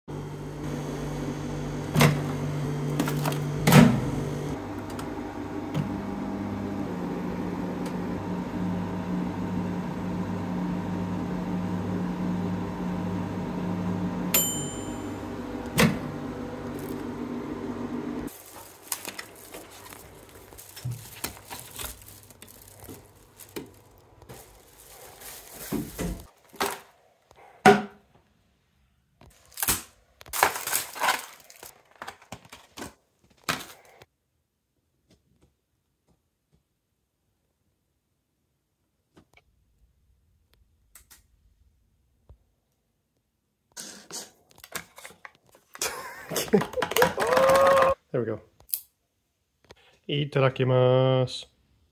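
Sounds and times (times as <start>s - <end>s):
microwave oven humming: 0.1s - 18.3s
timer bell ding: 14.3s - 15.3s
knocks and rustles: 18.4s - 26.9s.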